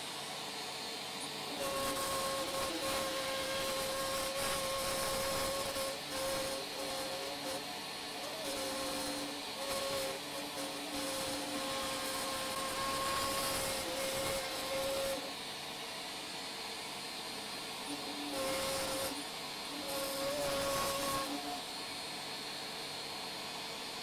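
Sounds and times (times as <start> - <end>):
router bit cutting hiss: 0.0 - 24.0
small electric motor whine: 0.0 - 24.0.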